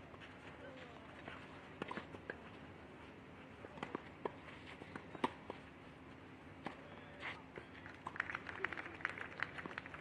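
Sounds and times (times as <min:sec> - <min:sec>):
low background hum: 0:00.0 - 0:10.0
tennis ball bounces: 0:03.7 - 0:05.6.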